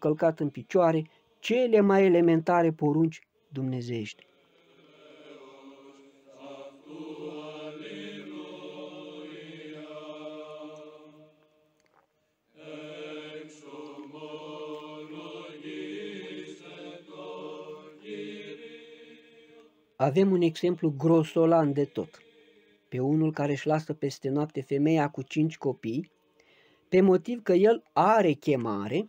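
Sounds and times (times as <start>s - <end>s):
slow vocal chant: 3.2s - 23.3s.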